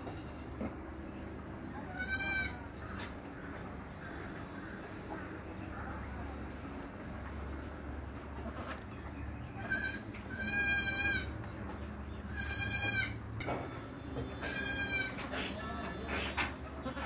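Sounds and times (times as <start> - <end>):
steady low hum: 0.0 - 17.0
goat bleating: 1.9 - 2.6, 9.6 - 11.3, 12.3 - 13.2, 14.4 - 17.0.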